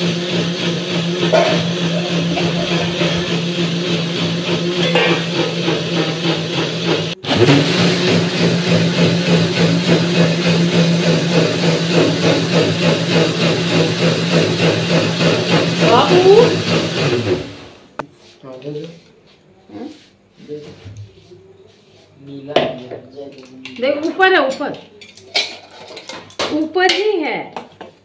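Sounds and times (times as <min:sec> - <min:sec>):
mixer grinder humming: 0:00.0 - 0:18.0.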